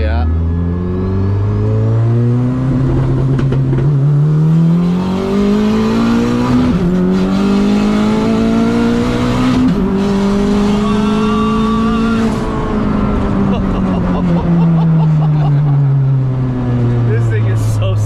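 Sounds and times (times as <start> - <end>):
car engine at full throttle: 0.0 - 18.0.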